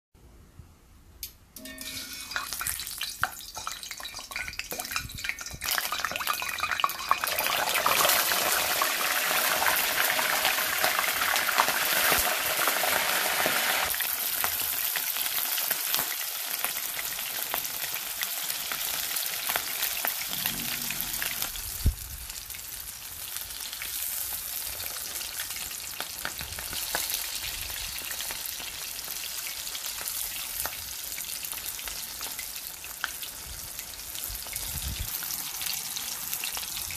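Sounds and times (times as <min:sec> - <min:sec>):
chicken deep-frying in oil: 0:01.6 - 0:36.9.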